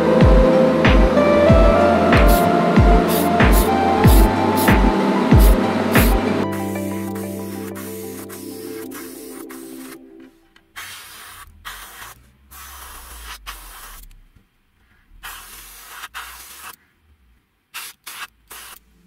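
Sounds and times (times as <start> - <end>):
airbrush hissing bursts: 2.2 - 10.0, 10.8 - 14.1, 15.2 - 16.8, 17.7 - 18.9.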